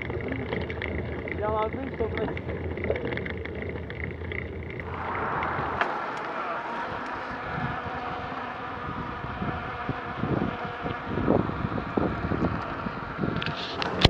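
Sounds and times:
bike tyres rolling: 0:00.0 - 0:14.0
wind buffeting microphone: 0:04.6 - 0:14.0.

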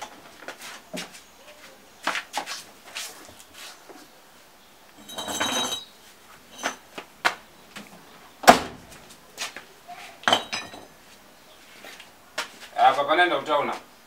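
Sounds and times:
hand tools clinking on ground: 0:05.0 - 0:06.8, 0:10.2 - 0:10.9
metal scraping clatter with ring: 0:05.0 - 0:06.8.

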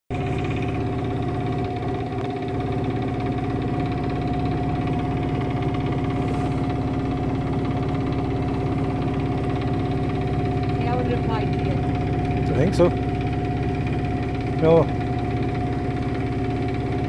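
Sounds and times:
boat engine running steadily: 0:00.1 - 0:17.0.

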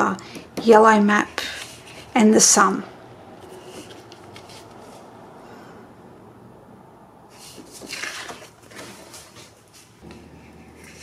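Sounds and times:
paper rustling and sliding: 0:03.4 - 0:05.0, 0:07.3 - 0:11.0.

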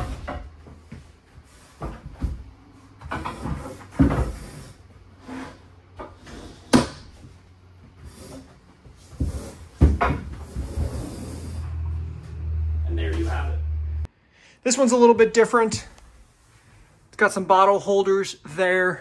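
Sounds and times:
furniture knocks and clunks: 0:09.1 - 0:10.8.

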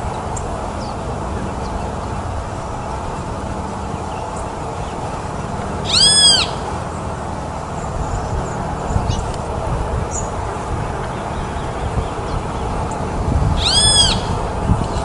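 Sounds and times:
low background rumble: 0:00.0 - 0:15.0
bird mewing call: 0:05.8 - 0:06.7, 0:13.6 - 0:15.0.

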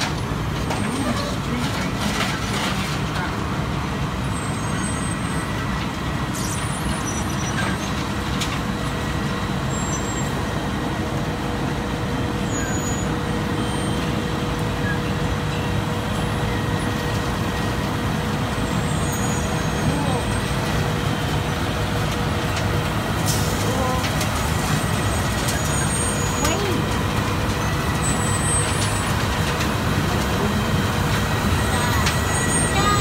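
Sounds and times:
heavy diesel drone: 0:00.0 - 0:33.0
constant high tone: 0:31.4 - 0:33.0.

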